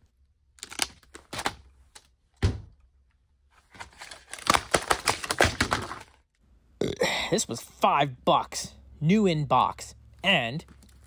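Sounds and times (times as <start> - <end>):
plastic blister pack crackling: 3.8 - 6.2.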